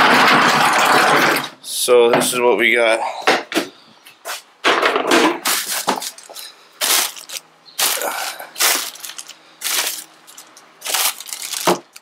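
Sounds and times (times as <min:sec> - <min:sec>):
plastic bags crinkling: 0:05.4 - 0:12.0.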